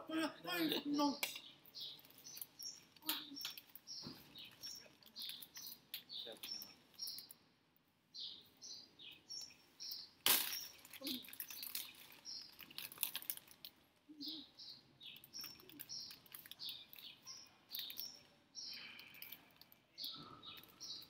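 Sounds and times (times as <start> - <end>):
small birds chirping: 0.0 - 21.0
loud sharp crackle: 10.2 - 13.8
crunchy snack being chewed: 10.3 - 13.8, 15.2 - 17.0.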